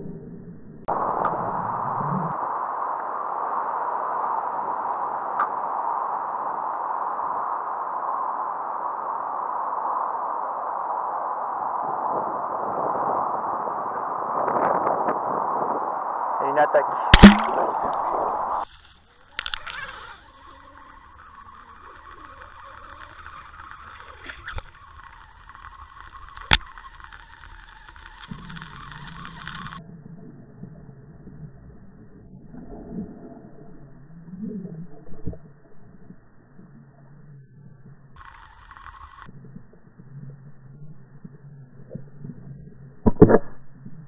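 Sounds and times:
steady hiss: 17.0s - 29.8s.

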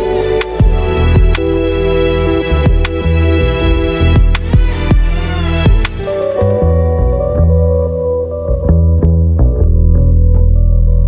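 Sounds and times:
steady drum beat: 0.0s - 6.6s
held chords: 0.0s - 11.0s.

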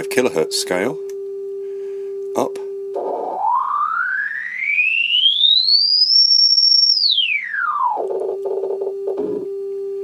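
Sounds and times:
sine tone gliding in pitch: 0.0s - 10.0s.

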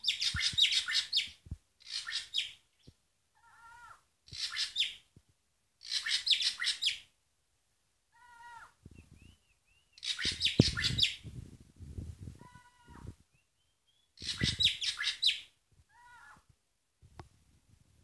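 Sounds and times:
drongo whistling calls: 0.0s - 2.9s, 4.3s - 5.0s, 5.8s - 7.0s, 9.0s - 11.3s, 13.3s - 15.5s.

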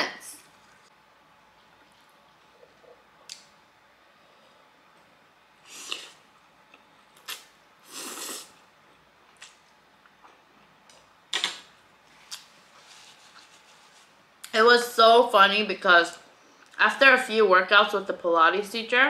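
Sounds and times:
noodle slurps: 7.3s - 8.6s.

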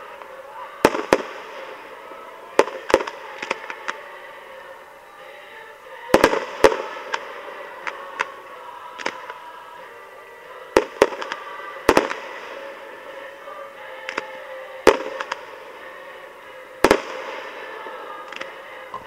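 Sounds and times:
firework shells bursting with bangs: 2.6s - 4.0s.

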